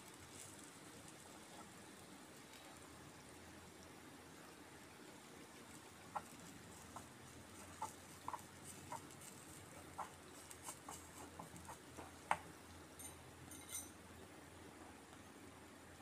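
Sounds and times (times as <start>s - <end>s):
spoon tapping and scraping pan: 6.2s - 14.0s.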